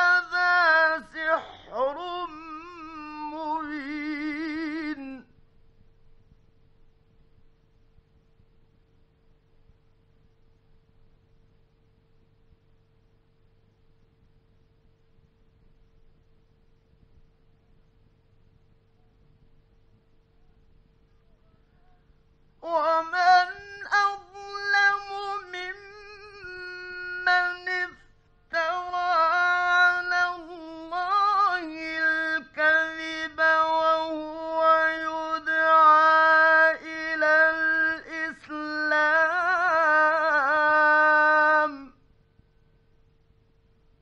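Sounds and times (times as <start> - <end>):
man reciting melodically: 0.0 - 5.3, 22.6 - 42.0
faint steady hum: 0.0 - 44.0.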